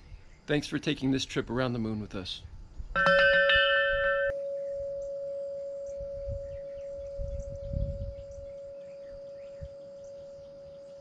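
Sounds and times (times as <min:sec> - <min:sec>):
wind rumble on microphone: 0:02.2 - 0:05.2, 0:05.8 - 0:10.9
deep tubular wind chime ringing: 0:03.0 - 0:11.0.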